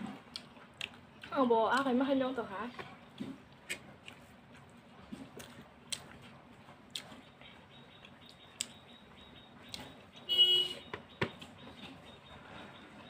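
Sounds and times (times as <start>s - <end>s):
chewing: 0.0s - 10.2s.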